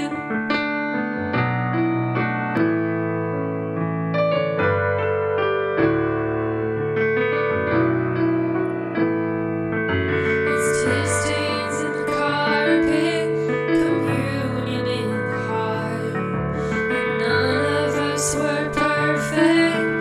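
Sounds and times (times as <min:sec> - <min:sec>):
piano playing slow chords: 0:00.0 - 0:20.0.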